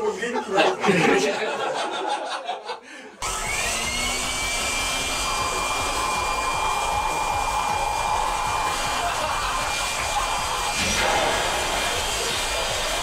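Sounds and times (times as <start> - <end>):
leaf blower blasting air: 3.2 - 13.0.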